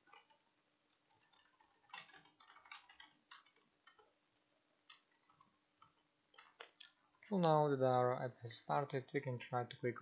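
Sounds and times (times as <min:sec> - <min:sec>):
keyboard typing: 0:00.0 - 0:04.2, 0:04.8 - 0:07.0.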